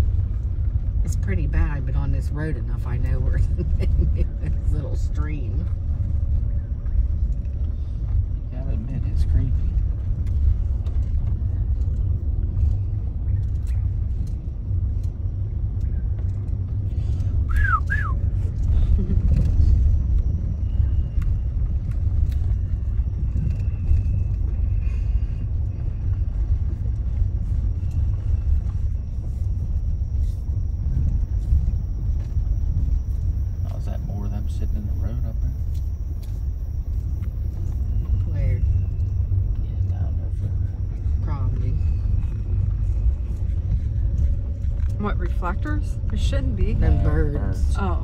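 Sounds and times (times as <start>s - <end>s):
car road noise on brick road: 0.0s - 48.0s
light clicks and rattles: 8.9s - 17.4s.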